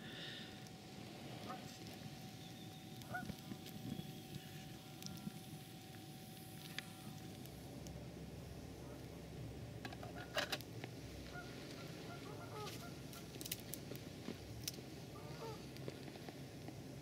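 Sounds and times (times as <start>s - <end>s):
low outdoor rumble: 0.0s - 17.0s
geese honking: 3.0s - 5.3s, 11.2s - 13.4s, 15.1s - 15.7s.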